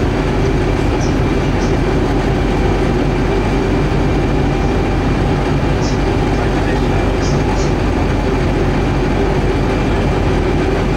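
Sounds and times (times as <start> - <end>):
bus engine drone: 0.0 - 10.9.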